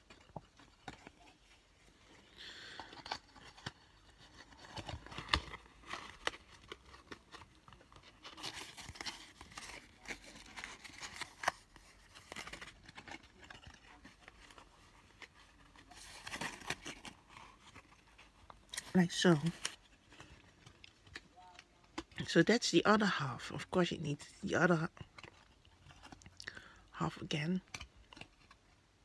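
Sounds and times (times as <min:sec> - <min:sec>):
paper rustling and crinkling: 0:00.0 - 0:22.2.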